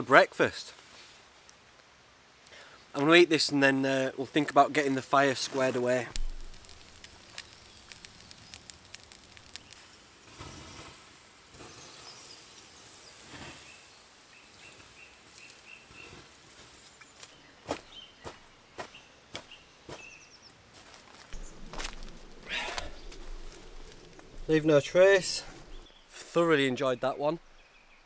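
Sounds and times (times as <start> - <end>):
embers hissing under water: 6.1 - 16.8, 21.3 - 26.4
boots stamping on ground: 17.2 - 20.1, 20.7 - 25.9.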